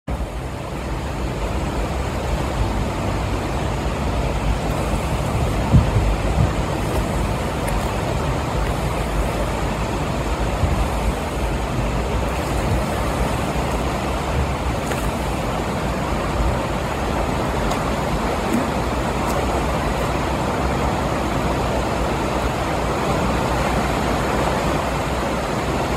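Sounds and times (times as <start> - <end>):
river rushing: 0.1 - 25.9
low thumps: 4.7 - 8.9.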